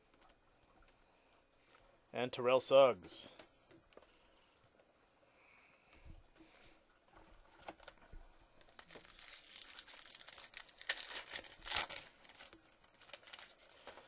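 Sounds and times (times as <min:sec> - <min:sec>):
foil wrapper crinkling and tearing: 0:07.5 - 0:14.0.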